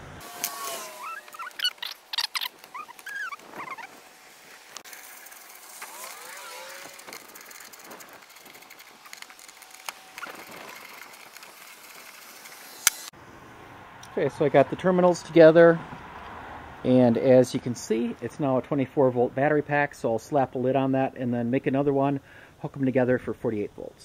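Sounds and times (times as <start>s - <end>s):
handling noise: 0.4s - 13.1s.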